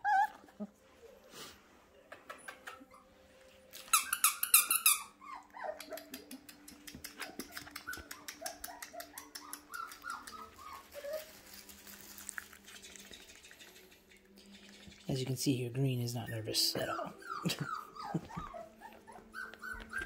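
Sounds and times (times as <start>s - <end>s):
puppies whimpering and yelping: 0.0s - 1.2s, 2.2s - 11.6s, 16.2s - 20.0s.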